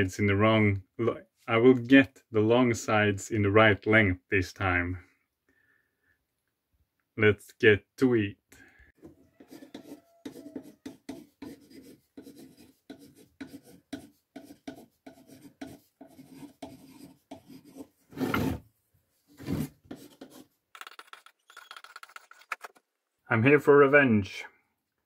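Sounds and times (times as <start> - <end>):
pencil scrapes: 9.4 - 18.6, 19.3 - 22.8
pencil scratching on wood: 9.4 - 18.6, 19.4 - 22.6.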